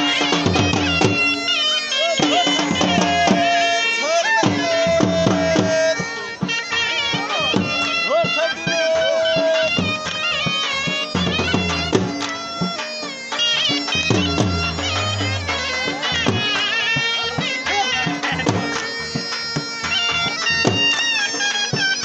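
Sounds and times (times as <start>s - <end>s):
folk melody with sliding notes: 0.0s - 22.0s
regular drum beat: 13.7s - 16.5s.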